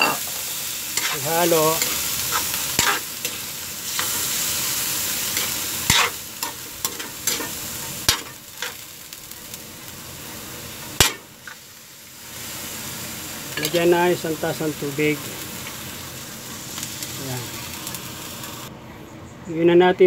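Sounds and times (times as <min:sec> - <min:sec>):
meat sizzling in hot oil: 0:00.0 - 0:18.7.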